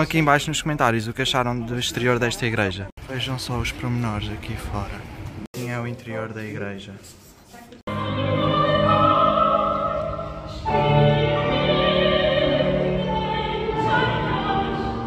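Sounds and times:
woman singing opera: 7.9s - 15.0s.

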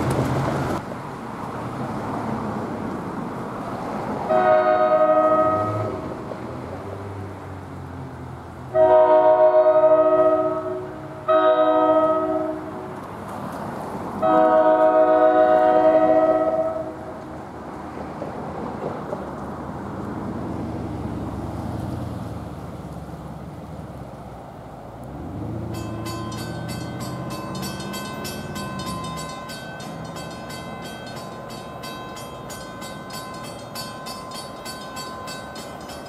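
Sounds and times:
train air horn blasts: 4.3s - 6.0s, 8.7s - 13.0s, 14.2s - 17.1s.

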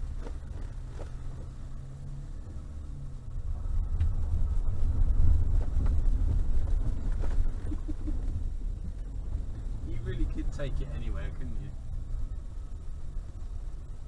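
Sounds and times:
car engine hum: 0.0s - 14.0s.

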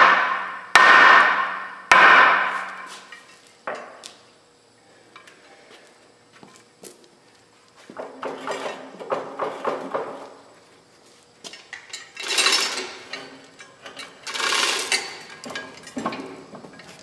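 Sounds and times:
metal rattling scrapes: 11.7s - 17.0s.

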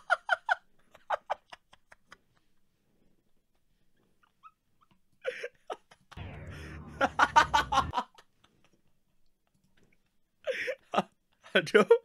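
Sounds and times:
man laughing hard: 5.3s - 8.3s.

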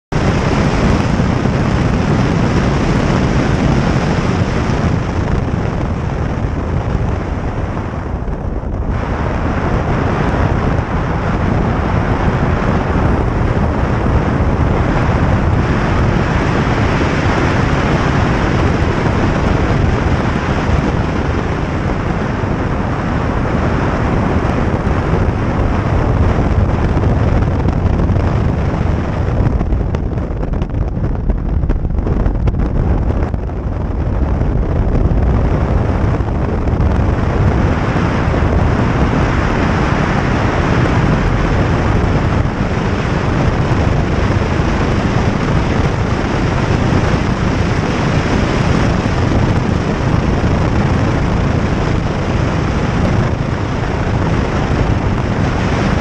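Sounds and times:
car engine under throttle: 0.0s - 56.0s
wind buffeting microphone: 0.0s - 56.0s.

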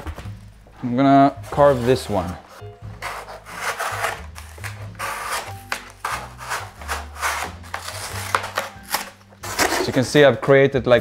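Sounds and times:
blade rasping foam: 1.5s - 10.0s.

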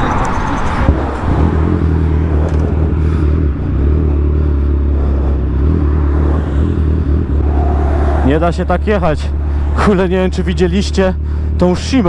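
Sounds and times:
motorcycle engine running: 1.6s - 8.0s
rushing noise: 6.2s - 10.3s.

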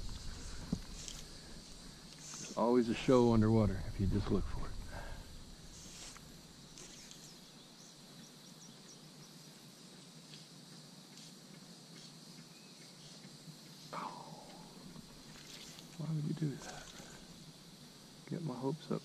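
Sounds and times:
insect hum: 0.0s - 19.0s
small birds chirping: 5.6s - 19.0s.

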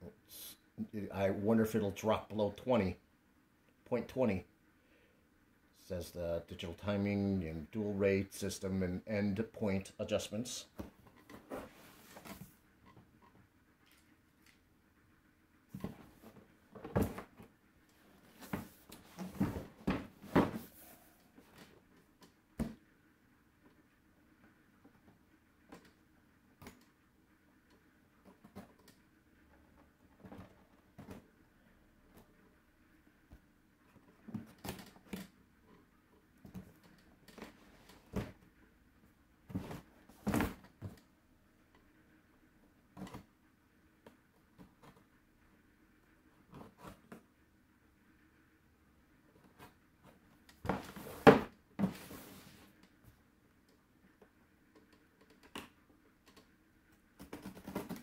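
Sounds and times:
box knocks and scrapes: 18.3s - 20.8s, 50.7s - 52.5s.

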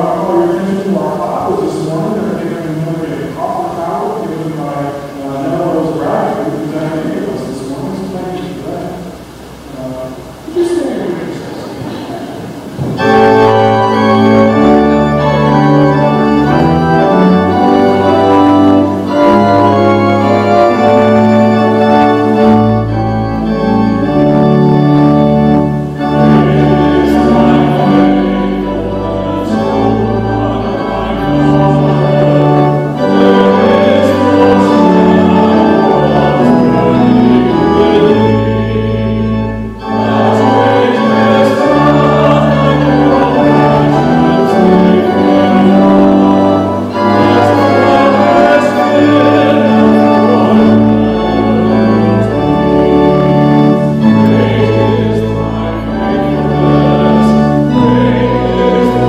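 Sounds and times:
church organ playing hymn chords: 0.0s - 59.0s.

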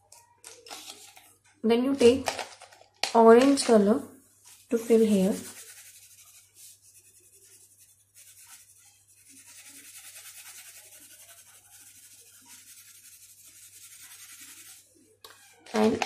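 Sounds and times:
crayon scratching on paper: 4.5s - 15.0s.

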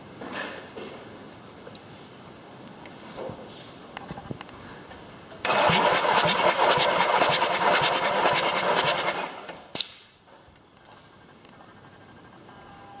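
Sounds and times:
diesel engine cranking: 5.4s - 9.7s
sharp click: 9.5s - 10.1s.

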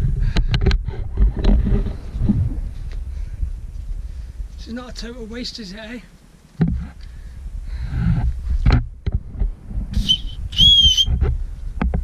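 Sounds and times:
plastic whistle blasts: 10.0s - 11.2s.

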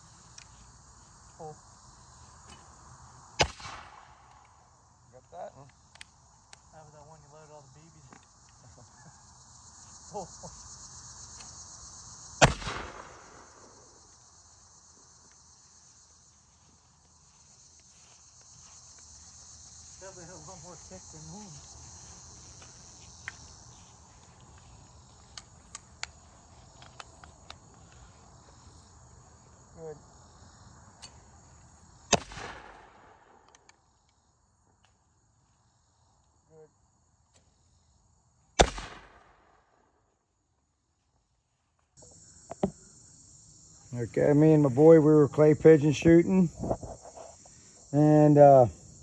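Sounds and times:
crickets chirping: 0.0s - 49.0s
gunshot with rolling echo: 3.4s - 4.2s, 12.4s - 13.4s, 32.1s - 33.3s, 38.6s - 39.3s
shotgun report: 12.4s - 13.4s, 38.6s - 39.2s.

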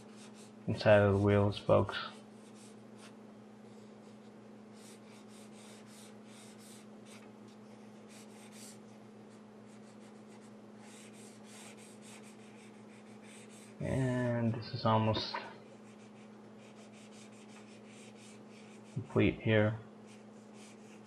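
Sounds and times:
steady low hum: 0.0s - 21.0s
marker scribbling on paper: 4.8s - 7.2s, 7.8s - 8.8s, 9.7s - 13.8s, 15.8s - 19.0s, 20.1s - 21.0s.

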